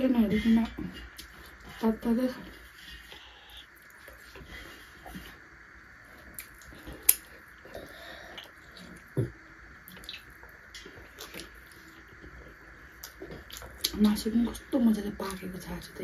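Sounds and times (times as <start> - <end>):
wet chewing and lip smacks: 6.2 - 7.7, 9.8 - 14.1.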